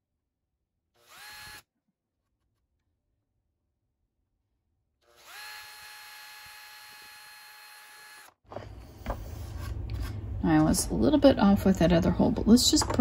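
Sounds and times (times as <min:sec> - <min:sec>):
cordless drill whining: 0:01.0 - 0:01.7, 0:05.0 - 0:08.4.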